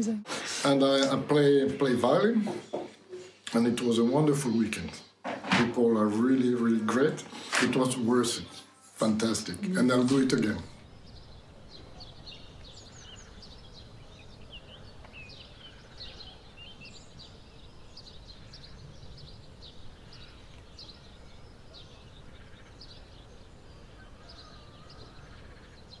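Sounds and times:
small birds chirping and singing: 0:09.2 - 0:26.0.

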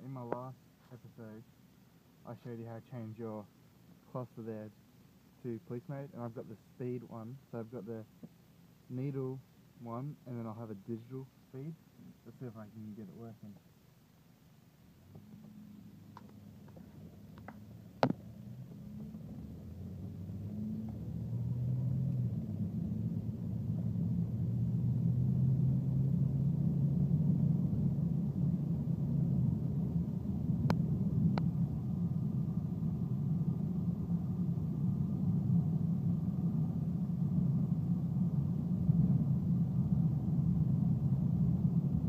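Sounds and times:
car engine and road rumble: 0:11.8 - 0:42.0.

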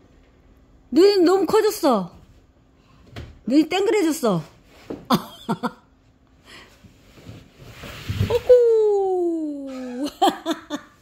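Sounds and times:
person exclaiming: 0:08.3 - 0:10.1.

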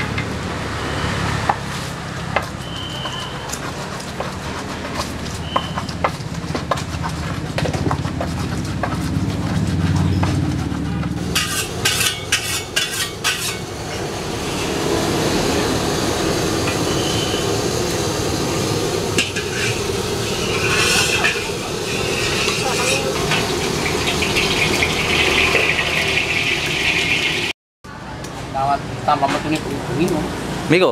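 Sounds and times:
gas wok burner roaring: 0:00.0 - 0:27.5
cooking utensils clanking: 0:02.5 - 0:14.9, 0:18.9 - 0:27.5
metal spatula scraping in wok: 0:10.4 - 0:15.3, 0:19.1 - 0:27.2.

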